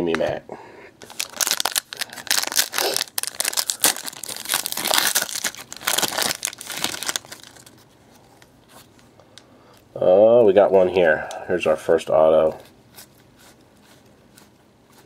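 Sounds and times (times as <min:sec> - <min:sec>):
foil wrapper tearing and crinkling: 0:01.0 - 0:07.9.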